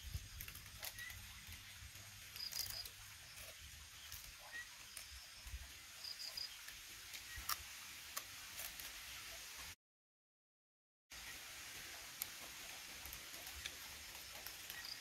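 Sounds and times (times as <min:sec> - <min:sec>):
insect chirping: 0:02.2 - 0:06.7, 0:13.4 - 0:15.0.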